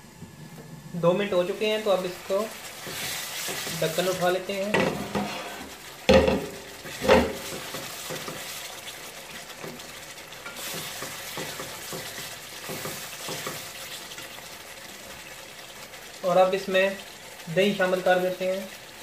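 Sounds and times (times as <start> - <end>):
food simmering and sizzling: 0.0 - 19.0
spatula scraping pot: 2.6 - 8.8.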